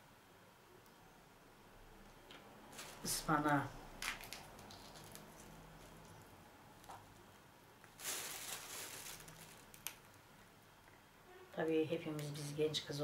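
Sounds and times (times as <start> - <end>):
crackling rustle: 2.1 - 11.0
pods rustling and snapping: 2.3 - 7.1, 7.8 - 10.5.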